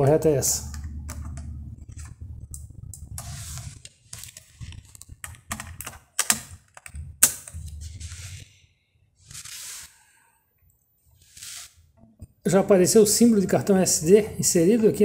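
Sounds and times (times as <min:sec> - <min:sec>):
plastic clicks and knocks: 0:04.2 - 0:07.6.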